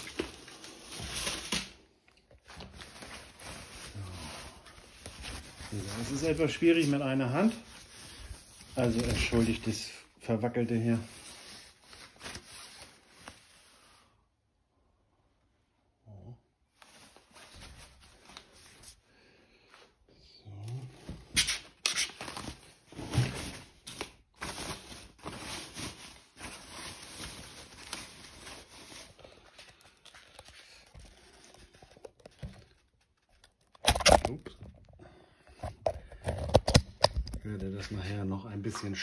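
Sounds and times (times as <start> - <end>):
packing wrap rustling: 0.0 - 13.9, 21.3 - 34.7.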